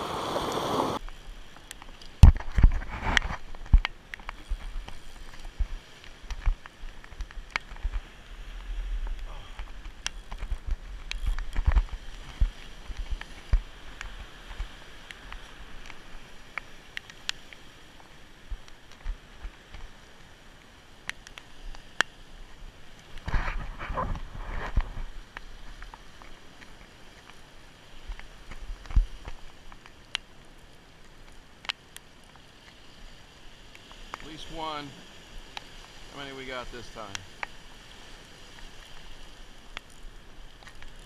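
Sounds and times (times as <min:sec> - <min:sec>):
surf washing against rocks: 0:00.0 - 0:01.5, 0:34.1 - 0:41.0
wind rumbling on microphone: 0:00.0 - 0:20.0, 0:21.5 - 0:30.0.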